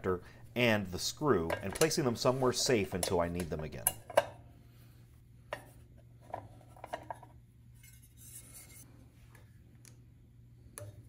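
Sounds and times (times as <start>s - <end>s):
soft scrape: 7.8s - 9.0s.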